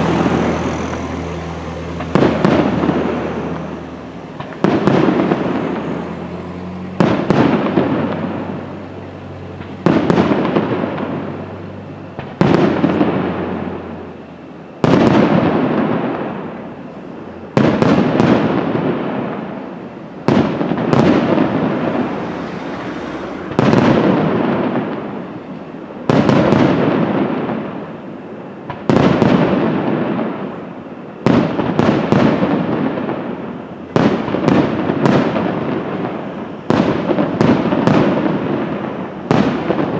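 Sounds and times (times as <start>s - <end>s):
firework shells bursting: 0.0s - 14.2s, 14.8s - 28.0s.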